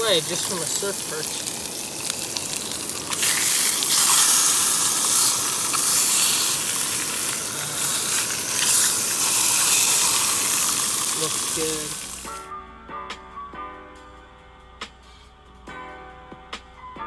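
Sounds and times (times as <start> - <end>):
fish sizzling in oil: 0.0 - 12.5.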